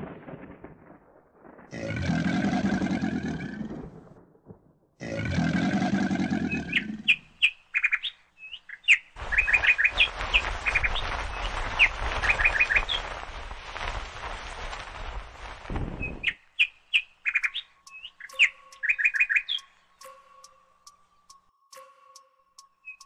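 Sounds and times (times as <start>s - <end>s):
low animal growls: 5.0s - 7.1s
birds chirping: 5.6s - 13.1s, 16.0s - 23.0s.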